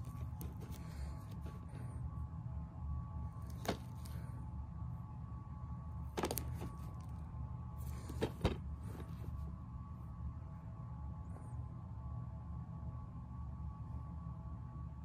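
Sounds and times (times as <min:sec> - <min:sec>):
plastic case crinkling and tapping: 0:06.2 - 0:06.9.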